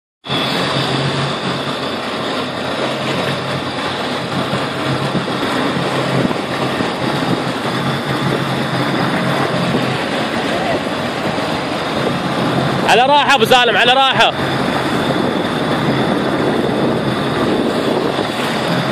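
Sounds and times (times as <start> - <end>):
boat engine humming: 0.2 - 18.9
water noise: 0.2 - 18.9
wind: 0.2 - 18.9.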